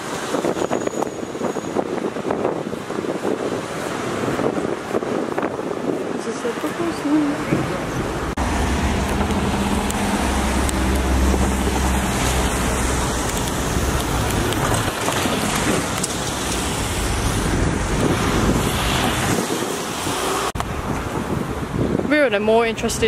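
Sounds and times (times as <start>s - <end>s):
road traffic: 0.0s - 23.0s
vehicle passing close: 6.1s - 21.6s.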